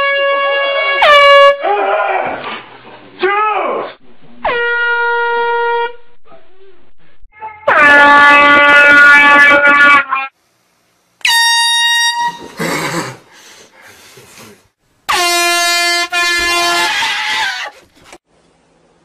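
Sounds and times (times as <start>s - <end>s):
air horn blasts: 0.0s - 1.6s, 4.0s - 6.5s, 7.3s - 10.4s, 11.2s - 12.6s, 15.1s - 17.6s.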